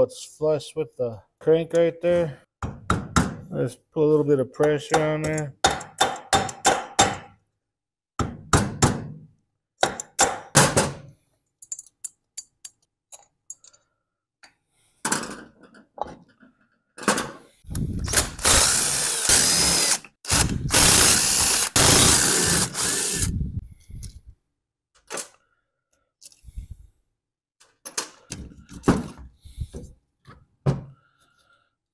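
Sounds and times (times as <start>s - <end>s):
light clicks of parts handled: 11.6s - 14.6s, 25.0s - 26.6s
cordless drill-driver running: 18.0s - 23.4s.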